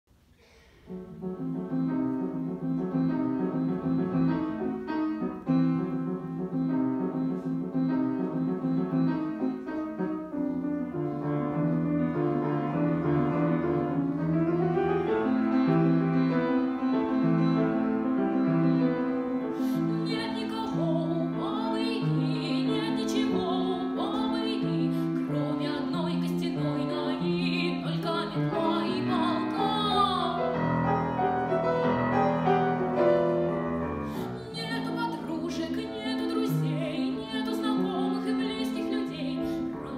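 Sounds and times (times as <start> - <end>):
grand piano: 0.1 - 39.9
girl singing: 20.0 - 30.8, 34.4 - 39.9.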